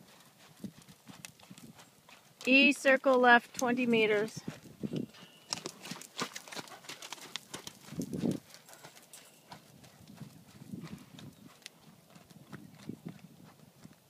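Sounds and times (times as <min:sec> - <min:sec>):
horse hoofbeats on sand: 0:00.0 - 0:14.0.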